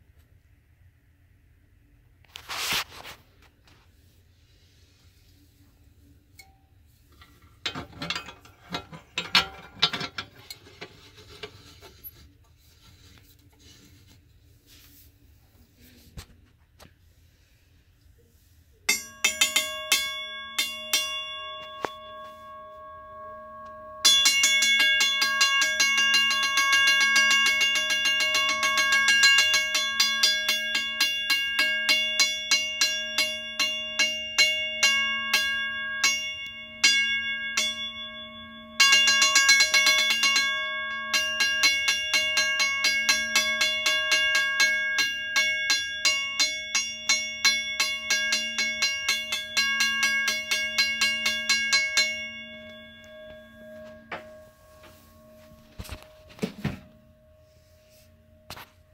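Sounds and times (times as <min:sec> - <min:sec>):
crossing bell gong struck by hand: 0:18.9 - 0:58.7.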